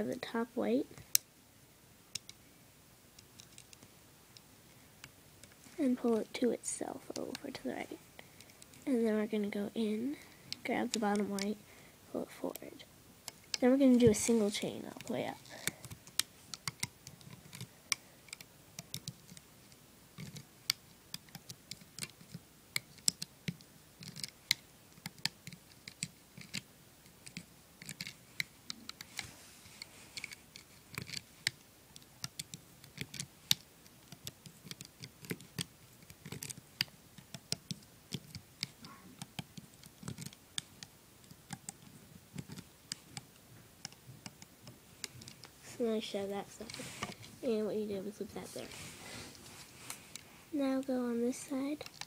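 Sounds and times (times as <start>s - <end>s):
plastic hook clicking on loom pins: 15.0s - 29.2s, 30.2s - 45.5s, 51.8s - 52.0s.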